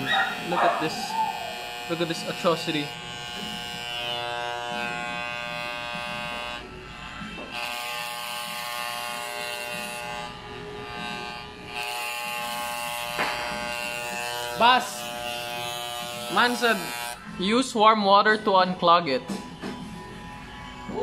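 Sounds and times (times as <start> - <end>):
electric hair clipper buzzing: 0.0 - 21.0.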